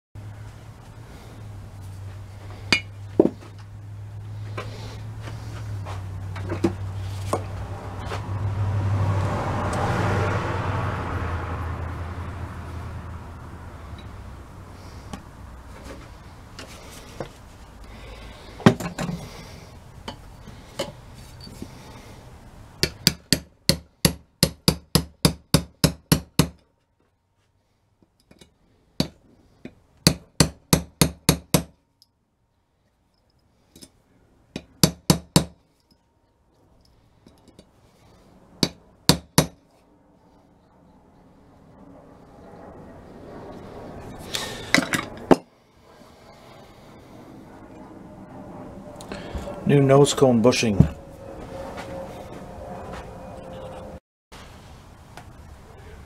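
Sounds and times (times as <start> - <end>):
hammer striking metal: 2.7 - 3.0, 22.8 - 26.6, 34.6 - 35.6, 38.6 - 39.6.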